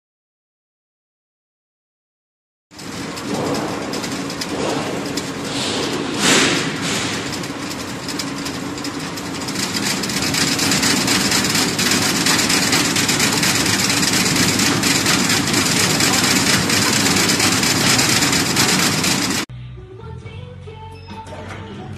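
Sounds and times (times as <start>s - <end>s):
dough cutting machine running: 2.8s - 19.5s
low hum: 2.8s - 20.0s.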